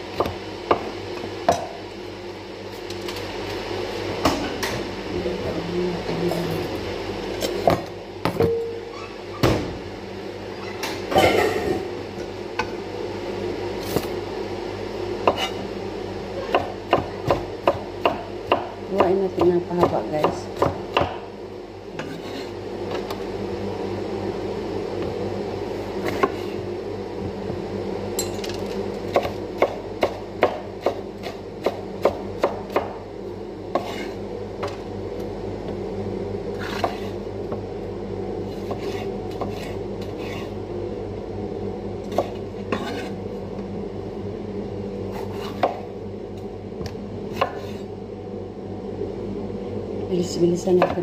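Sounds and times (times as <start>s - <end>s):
low hum: 32.0s - 51.0s.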